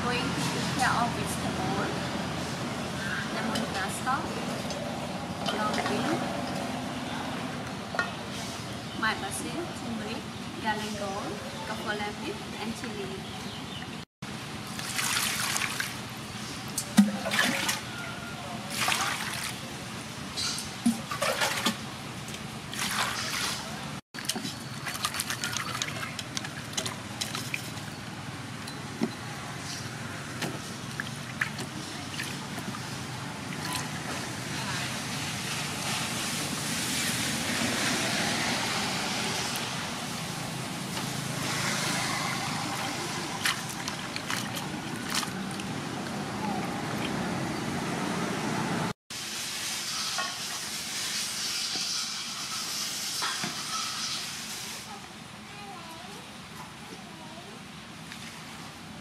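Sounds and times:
water splashing in metal basin: 14.7 - 16.0, 16.8 - 18.0, 18.7 - 19.6, 20.8 - 28.0, 41.4 - 47.6.

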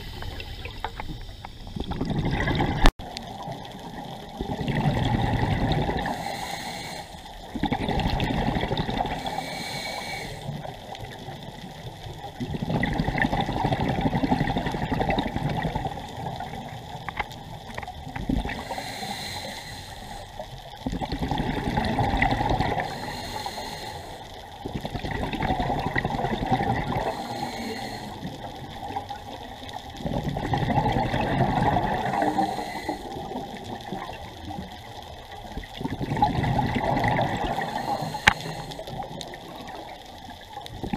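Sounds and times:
exhaled bubbles rushing: 0.0 - 6.2, 7.4 - 9.3, 10.8 - 18.7, 20.8 - 22.9, 24.6 - 27.2, 28.2 - 40.1
regulator inhalation hiss: 6.0 - 7.4, 9.1 - 10.7, 18.5 - 20.6, 22.8 - 24.5, 27.0 - 28.4, 32.2 - 33.3, 37.5 - 39.0.

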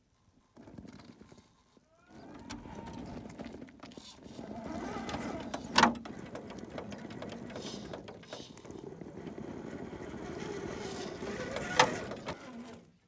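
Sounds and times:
rc car motor whining: 4.0 - 13.0.

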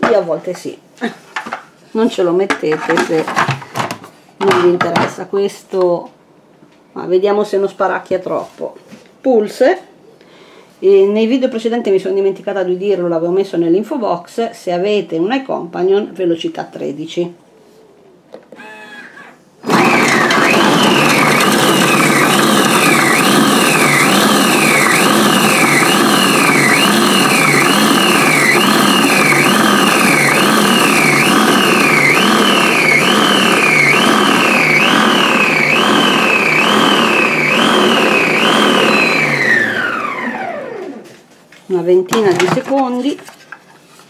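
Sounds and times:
food processor motor whining: 18.5 - 41.0.

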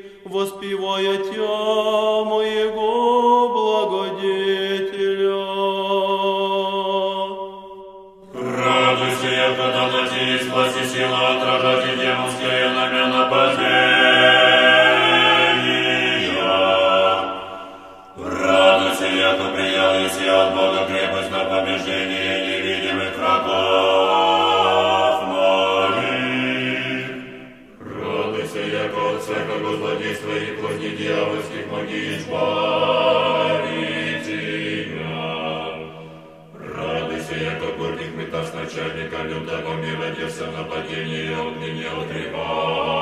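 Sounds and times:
church choir chanting: 0.0 - 43.0.

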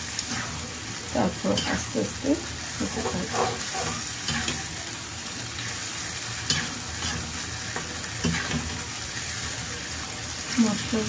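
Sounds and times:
paste sizzling in oil: 0.0 - 11.0
metal spatula scraping iron pan: 2.8 - 4.6.

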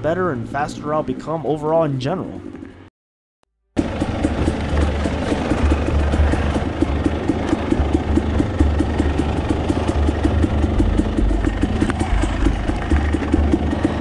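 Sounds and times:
dirt bike engine low speed: 3.8 - 14.0.

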